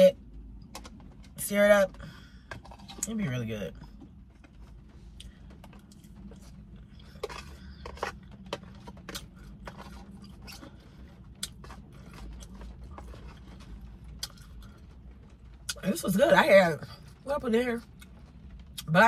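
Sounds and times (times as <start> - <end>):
low steady hum: 0.0 - 19.0
person chewing food: 4.0 - 14.9.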